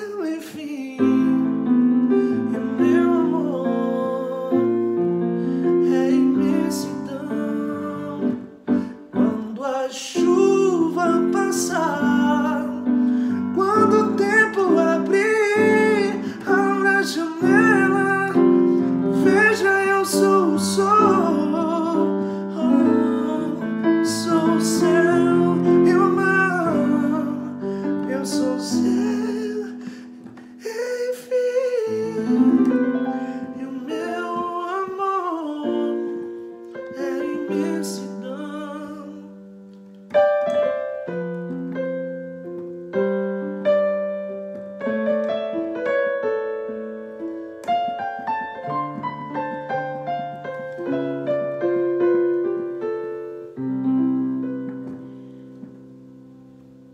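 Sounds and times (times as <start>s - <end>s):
man singing: 0.0s - 39.5s
piano playing: 0.0s - 56.9s.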